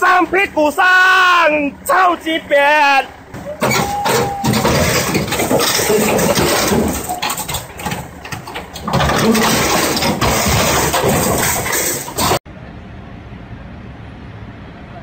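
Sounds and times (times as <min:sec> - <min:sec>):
excavator engine under load: 0:03.1 - 0:12.4.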